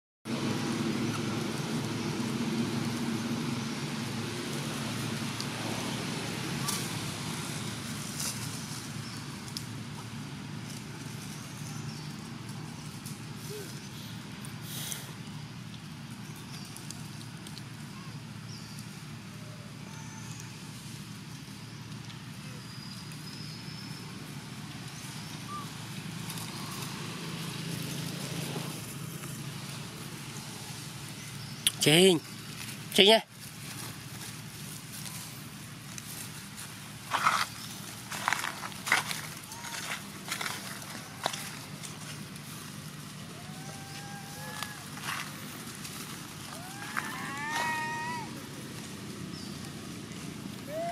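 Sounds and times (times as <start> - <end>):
rustling of dry leaf litter: 0.3 - 50.9
hiss: 13.4 - 15.2.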